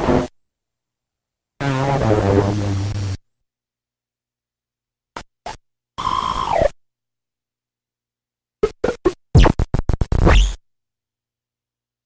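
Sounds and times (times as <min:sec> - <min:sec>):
glitchy stuttering bursts: 0:08.7 - 0:10.6.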